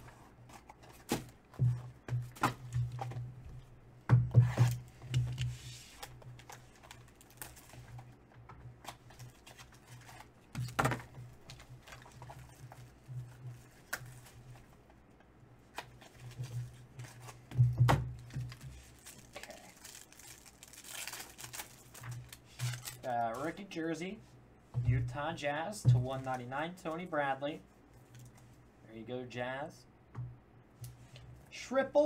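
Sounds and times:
plastic wrapper crinkling: 0:18.5 - 0:23.5.

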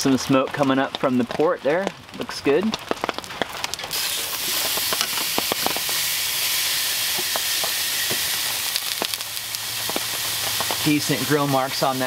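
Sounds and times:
sharp fat pops: 0:02.8 - 0:06.0, 0:07.1 - 0:10.9
steak sizzling on a grill: 0:03.8 - 0:12.0.

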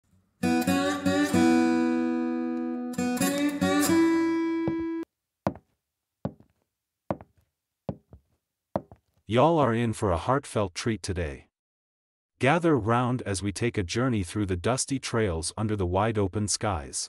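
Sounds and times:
acoustic guitar strumming: 0:02.9 - 0:05.0
short knocks: 0:06.3 - 0:06.5, 0:07.1 - 0:07.3, 0:07.9 - 0:08.2, 0:08.8 - 0:09.0.

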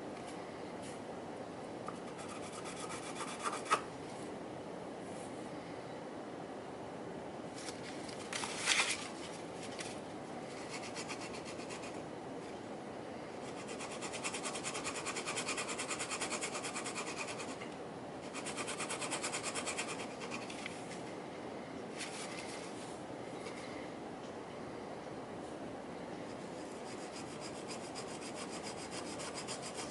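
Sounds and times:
metal rasping on sandpaper: 0:02.1 - 0:03.8, 0:13.6 - 0:17.6, 0:18.3 - 0:20.5, 0:26.7 - 0:29.9.

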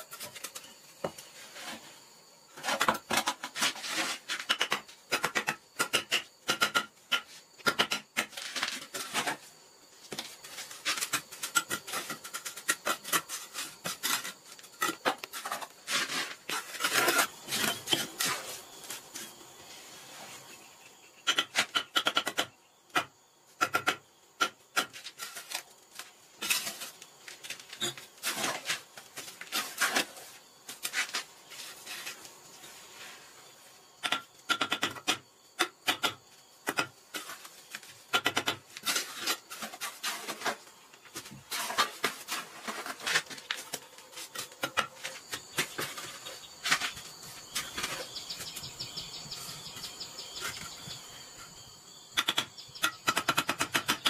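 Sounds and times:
trowel scraping and tapping mortar: 0:10.1 - 0:19.3, 0:34.0 - 0:48.6.

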